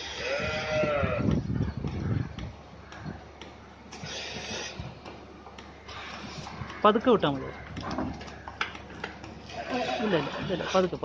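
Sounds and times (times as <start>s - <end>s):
calf bleating: 0.0s - 1.3s.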